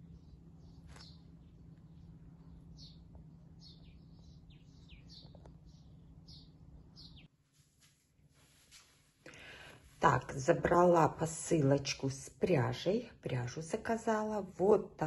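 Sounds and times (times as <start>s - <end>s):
low outdoor rumble: 0.0s - 7.3s
small birds chirping: 0.0s - 7.3s.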